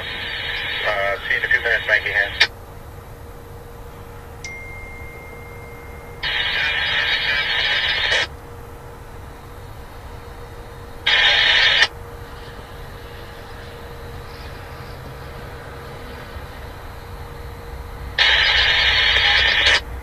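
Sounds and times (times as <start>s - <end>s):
radio static hiss: 0.0s - 2.6s, 6.2s - 8.3s, 11.0s - 16.6s, 18.2s - 19.9s
diesel locomotive rumble: 0.0s - 20.0s
steady beep tone: 4.4s - 8.2s.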